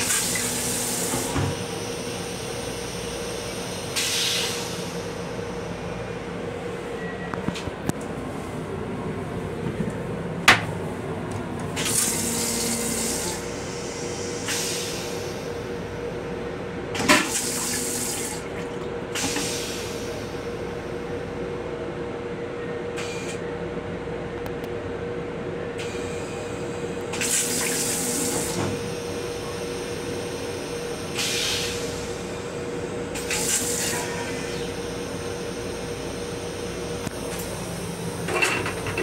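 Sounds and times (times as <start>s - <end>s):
railcar hum: 0.0s - 39.0s
toilet flushing water hissing: 17.0s - 20.4s.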